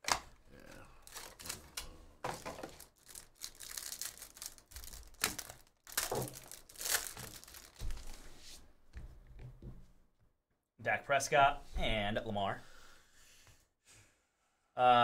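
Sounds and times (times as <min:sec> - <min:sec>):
plastic wrapper crinkling and tearing: 0:00.6 - 0:08.2.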